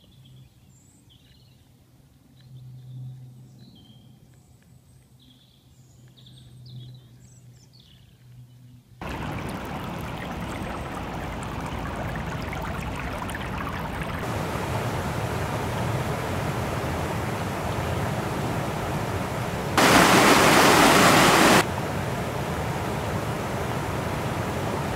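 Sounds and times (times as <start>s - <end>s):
stream rushing over stones: 9.0s - 24.9s.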